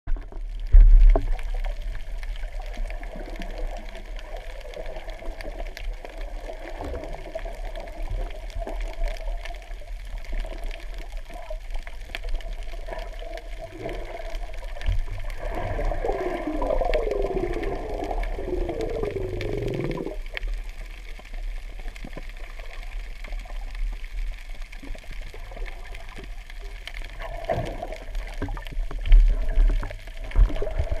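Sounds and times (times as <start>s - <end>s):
underwater rumble: 0.1s - 31.0s.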